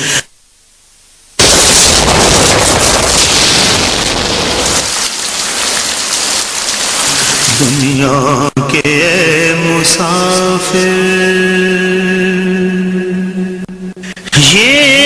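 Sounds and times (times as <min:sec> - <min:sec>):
steady noise rush: 0:00.0 - 0:08.2
person singing: 0:07.4 - 0:15.0.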